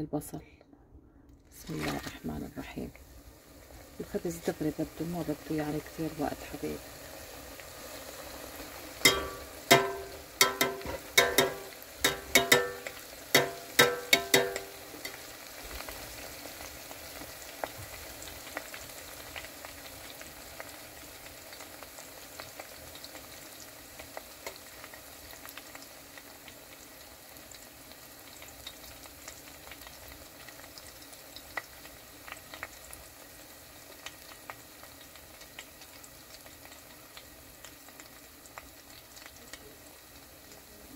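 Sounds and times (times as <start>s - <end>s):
flatbread sizzling in oil: 3.0s - 40.9s
utensil striking metal pot: 9.0s - 15.3s.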